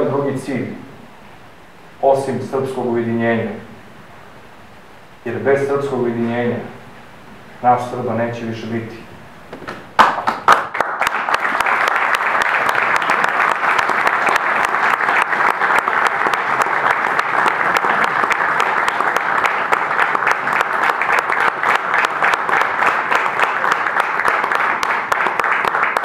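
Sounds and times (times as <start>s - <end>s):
audience applauding: 10.0s - 26.0s.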